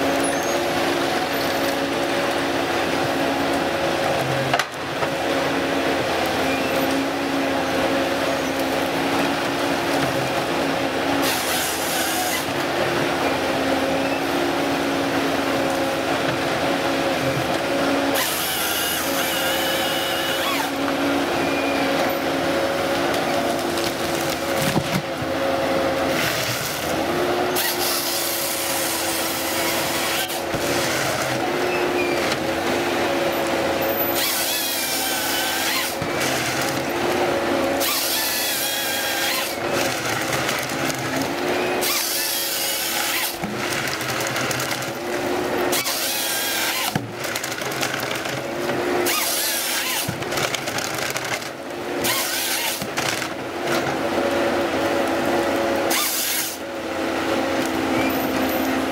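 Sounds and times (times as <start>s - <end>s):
diesel engine running: 0.0s - 58.9s.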